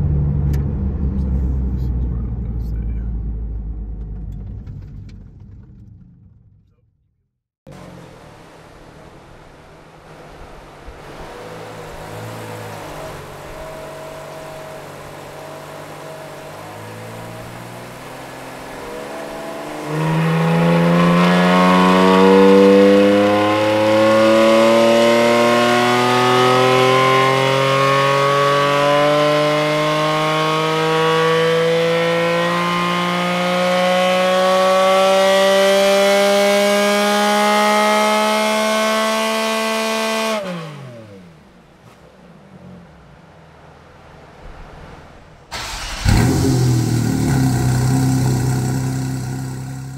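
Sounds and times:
sports car engine revving on dyno: 0:12.0 - 0:41.1, 0:45.6 - 0:49.9.

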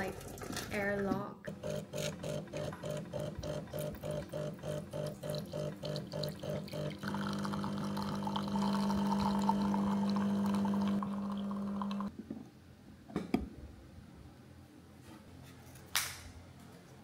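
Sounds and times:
espresso machine pump: 0:01.5 - 0:12.1
coffee pouring hiss: 0:04.5 - 0:12.1.

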